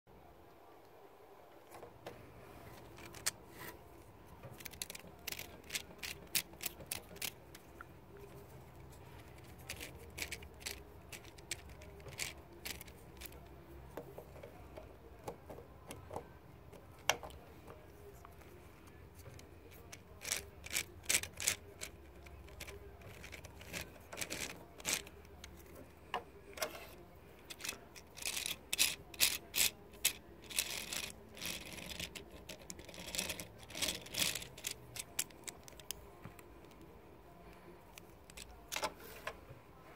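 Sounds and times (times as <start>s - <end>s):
plastic gears clicking and rattling: 2.8s - 3.4s, 4.5s - 13.5s, 19.1s - 25.8s, 26.6s - 36.0s.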